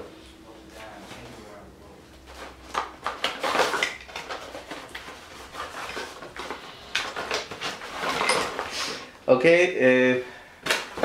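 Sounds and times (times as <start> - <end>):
cardboard packaging rustling: 2.2 - 9.0.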